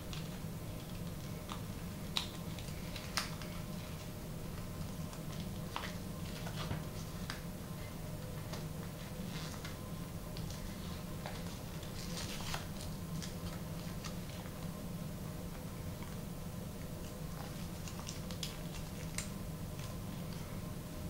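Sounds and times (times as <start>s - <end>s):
steady low hum: 0.0s - 21.0s
paper crinkling: 0.1s - 7.4s, 10.4s - 14.8s, 17.0s - 20.5s.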